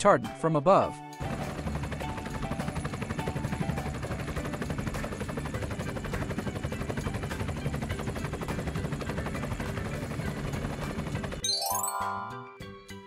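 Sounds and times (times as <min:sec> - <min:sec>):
helicopter rotor chopping: 0:01.2 - 0:11.4
short rising chime: 0:11.4 - 0:12.6.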